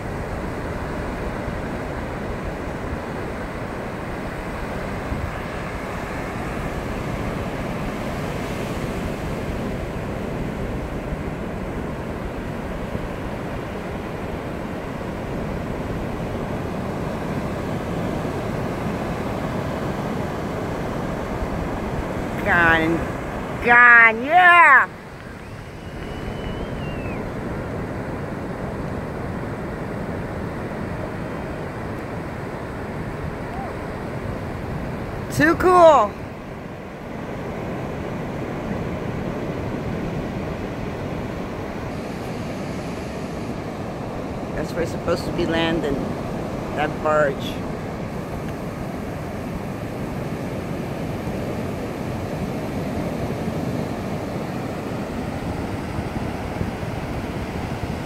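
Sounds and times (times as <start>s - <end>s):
surf: 0.0s - 58.0s
wind: 0.0s - 58.0s
faint high whistle: 25.4s - 27.3s.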